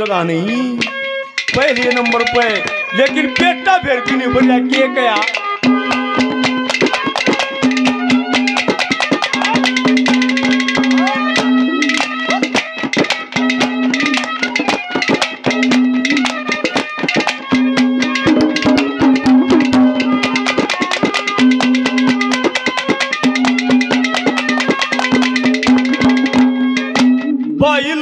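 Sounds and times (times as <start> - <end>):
harmonium melody: 0.0 - 28.0
fast hand drum strokes: 0.8 - 27.4.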